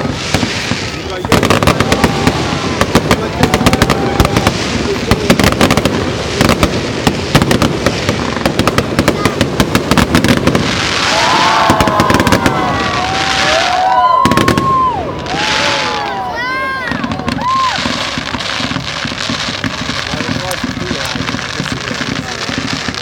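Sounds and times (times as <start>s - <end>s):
fireworks bangs and crackles: 0.0s - 23.0s
fireworks hissing: 0.0s - 23.0s.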